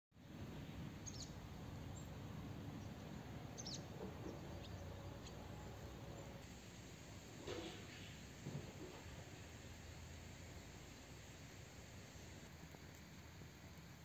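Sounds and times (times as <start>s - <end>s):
birds chirping: 1.0s - 6.4s.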